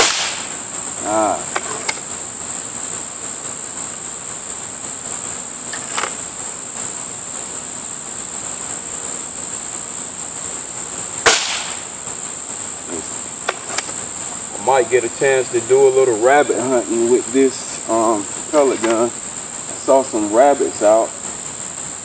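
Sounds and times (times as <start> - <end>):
air rifle shot: 0.0 - 0.6, 11.2 - 11.9
high drone of insects: 0.0 - 22.0.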